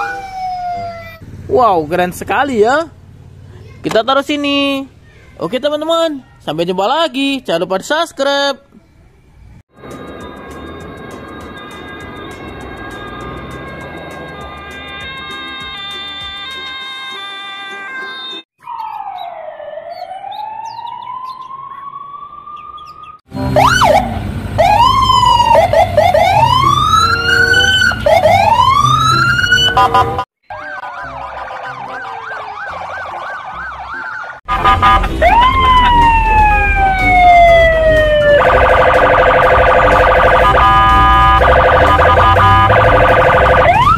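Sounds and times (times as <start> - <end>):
harsh buzzing siren tone: 0.0 - 1.1, 9.8 - 43.9
police sirens wailing and yelping: 0.0 - 1.2, 9.9 - 43.9.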